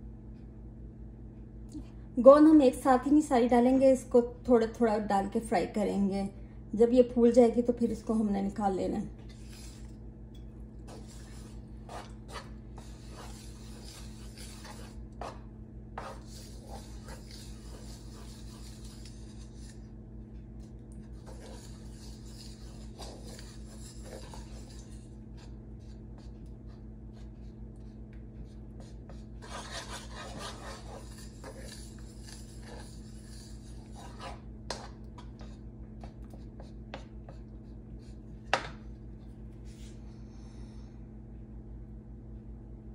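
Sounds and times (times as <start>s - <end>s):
steady low hum: 0.0s - 42.9s
wooden spatula scraping metal wok: 10.9s - 15.4s, 16.0s - 19.8s, 21.2s - 24.9s, 29.4s - 35.3s.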